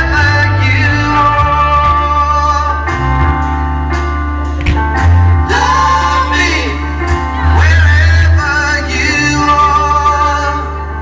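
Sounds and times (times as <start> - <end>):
person singing: 0.0 - 3.1, 5.4 - 11.0
held bass notes: 0.0 - 11.0.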